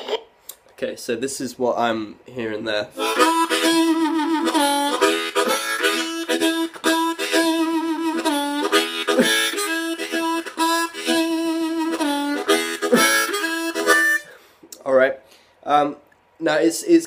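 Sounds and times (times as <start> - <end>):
blues harmonica riff: 3.0 - 14.6.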